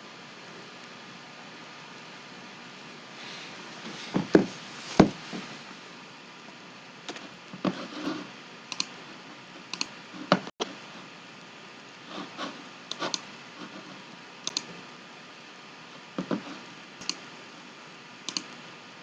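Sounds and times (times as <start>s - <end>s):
low steady hiss: 0.0s - 19.0s
keyboard and mouse clicks: 8.7s - 9.0s, 9.7s - 10.4s, 12.9s - 13.3s, 14.4s - 14.8s, 17.0s - 17.3s, 18.3s - 18.6s.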